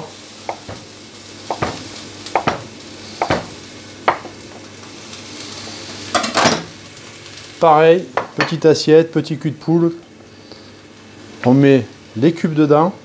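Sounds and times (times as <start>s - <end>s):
vegetables sizzling in a frying pan: 0.0s - 13.0s
knife chopping on wooden board: 0.5s - 0.9s, 1.5s - 4.4s.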